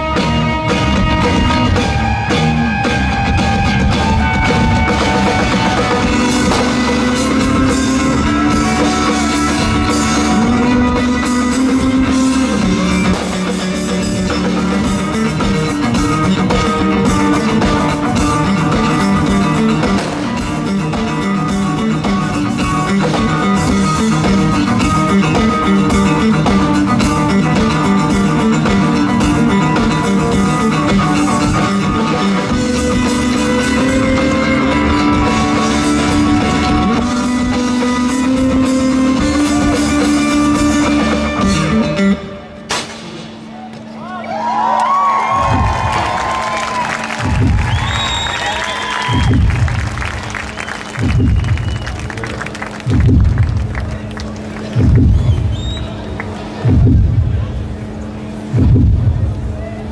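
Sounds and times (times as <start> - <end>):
drum kit: 0.0 - 43.6, 45.1 - 59.6
bass guitar: 0.0 - 59.9
electric guitar: 0.0 - 59.9.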